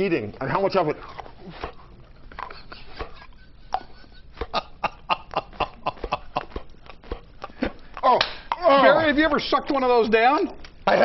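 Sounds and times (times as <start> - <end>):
person chuckling: 2.3 - 8.7.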